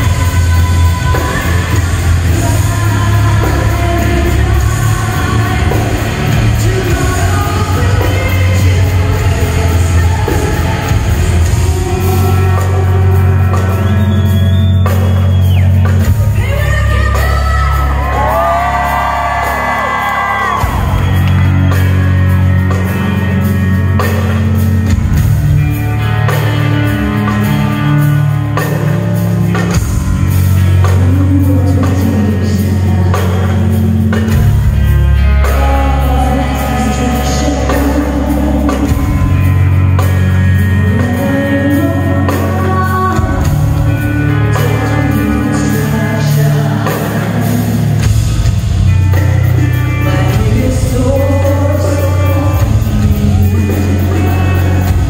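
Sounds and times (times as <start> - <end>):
woman singing: 0.0 - 15.1, 16.0 - 21.2, 30.6 - 48.1, 48.9 - 55.0
live heavy metal band: 0.0 - 55.0.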